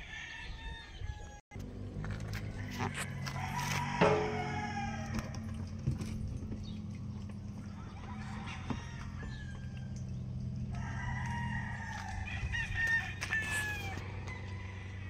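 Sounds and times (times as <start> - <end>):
rooster crowing: 0.0 - 1.4, 2.4 - 5.8, 7.6 - 10.0, 10.7 - 15.0
low engine hum: 1.5 - 15.0.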